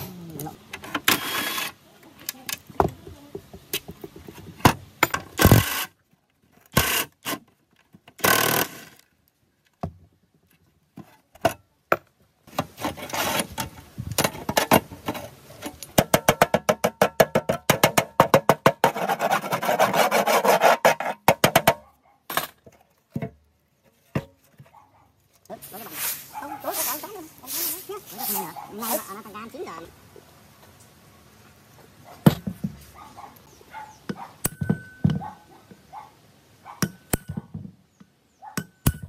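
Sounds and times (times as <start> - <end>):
rusty screw thread grating: 1.0 - 1.8, 8.2 - 9.0
metal knocks and clatter: 34.4 - 35.3.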